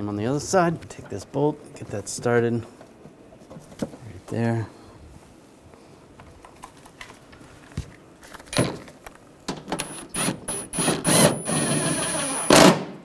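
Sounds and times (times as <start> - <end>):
cordless power driver whining: 9.8 - 12.8.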